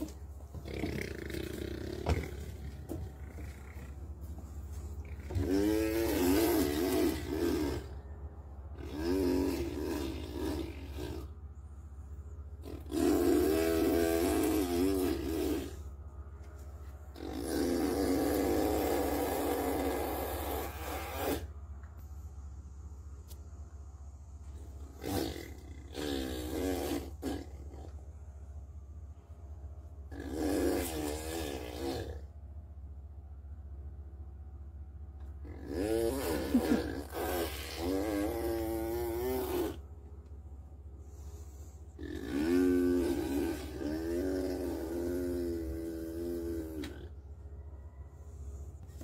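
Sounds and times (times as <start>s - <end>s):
toddler imitating engine noise: 5.0s - 8.0s, 8.8s - 11.3s, 12.6s - 15.8s, 17.2s - 21.5s, 24.9s - 27.9s, 35.4s - 39.8s, 42.0s - 47.1s
toddler making buzzing noise: 35.7s - 39.8s.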